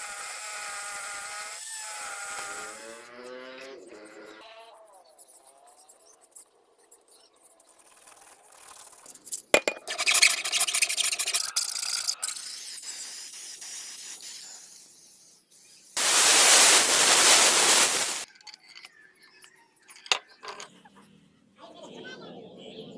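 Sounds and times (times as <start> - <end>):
aerosol spray can hissing: 9.8 - 18.3.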